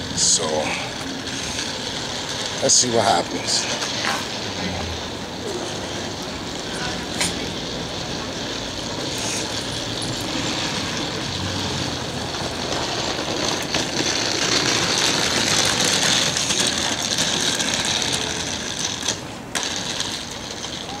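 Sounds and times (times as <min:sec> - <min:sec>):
city street noise: 0:00.0 - 0:21.0
suitcase wheels clattering on pavement: 0:00.0 - 0:21.0.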